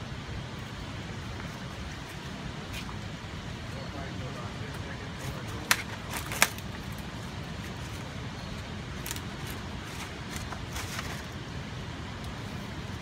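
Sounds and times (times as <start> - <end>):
litter crunching and crinkling: 5.2 - 11.4.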